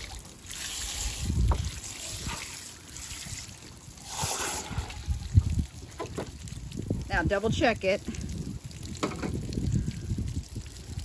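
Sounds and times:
hose nozzle spraying water: 0.0s - 6.3s.

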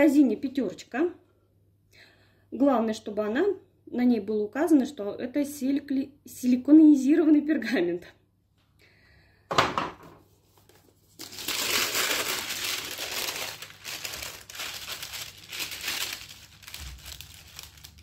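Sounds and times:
baking parchment crinkling: 10.5s - 18.0s.

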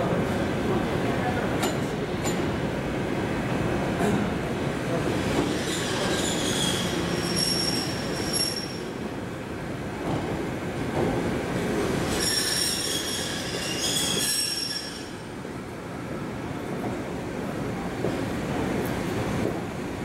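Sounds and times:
train rumbling: 0.0s - 20.0s
train wheels squealing: 5.4s - 9.0s, 12.0s - 15.3s.

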